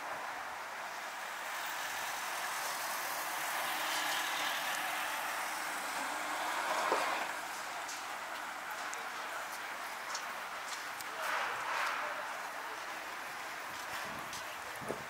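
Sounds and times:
car passing by: 0:00.9 - 0:08.8.

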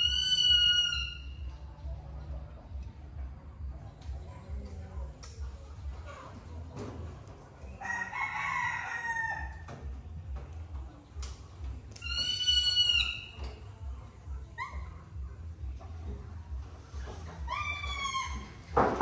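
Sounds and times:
rooster crowing: 0:07.8 - 0:09.6.

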